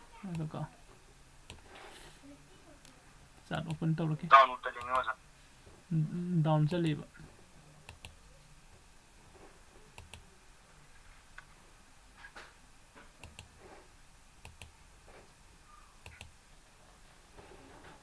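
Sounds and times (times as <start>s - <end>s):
computer mouse clicks: 7.9s - 8.2s, 10.0s - 10.2s, 13.2s - 13.5s, 14.4s - 14.7s, 16.0s - 16.4s.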